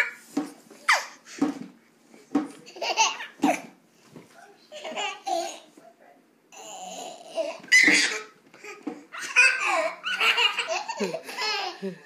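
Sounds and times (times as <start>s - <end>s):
babies laughing: 2.7s - 3.7s, 6.9s - 12.0s.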